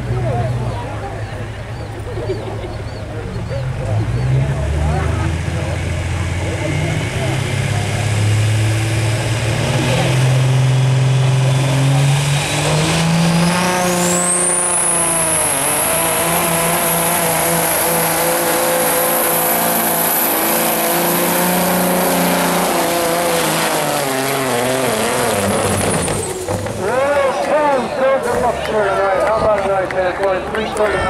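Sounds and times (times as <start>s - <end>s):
diesel truck engine under load: 0.0s - 31.0s.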